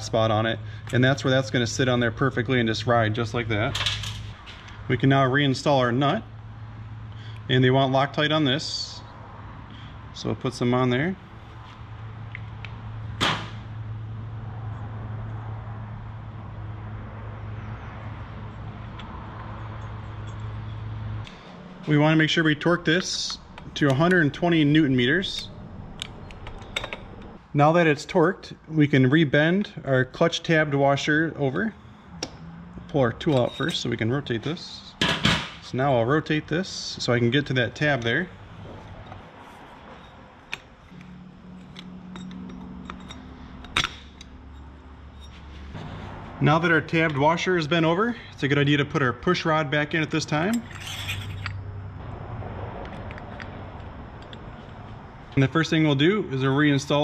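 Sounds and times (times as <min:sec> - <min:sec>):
steady low hum: 0:18.3 - 0:29.9, 0:30.5 - 0:57.0.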